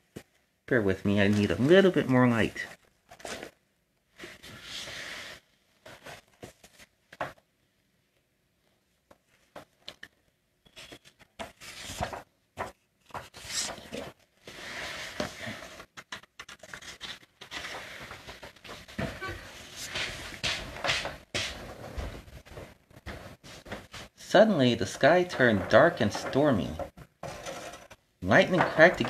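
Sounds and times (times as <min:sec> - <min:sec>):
fabric rustling and scraping: 0:13.0 - 0:16.0, 0:16.6 - 0:24.2.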